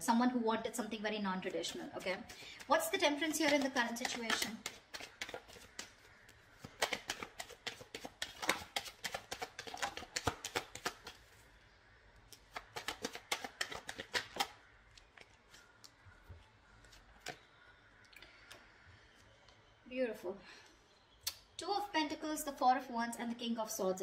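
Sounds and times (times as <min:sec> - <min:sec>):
cards being shuffled: 0:01.5 - 0:11.4, 0:12.3 - 0:16.0, 0:16.8 - 0:17.4.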